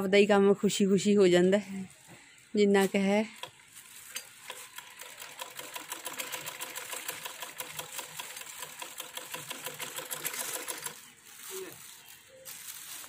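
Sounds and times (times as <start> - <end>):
sewing machine stitching: 4.5 - 11.0.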